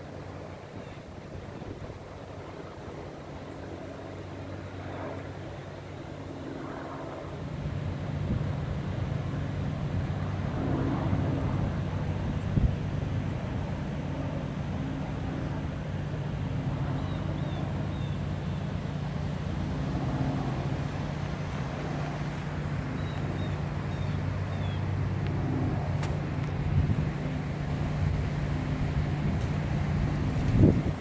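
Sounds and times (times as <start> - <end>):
wind noise: 7.7 - 16.9, 25.3 - 31.0
low motor hum: 8.2 - 31.0.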